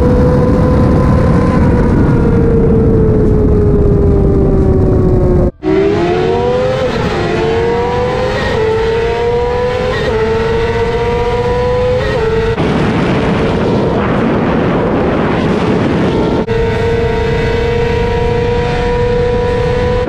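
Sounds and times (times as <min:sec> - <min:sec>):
motorcycle engine at high revs: 0:00.0 - 0:14.0, 0:15.4 - 0:20.0
wind noise: 0:00.0 - 0:20.0.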